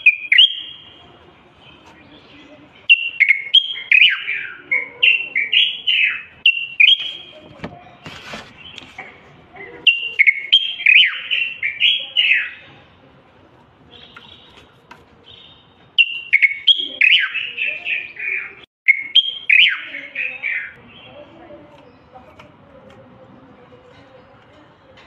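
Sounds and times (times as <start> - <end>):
bulbul singing whistled notes: 0.0 - 1.0, 2.8 - 7.4, 9.9 - 12.6, 15.3 - 21.1.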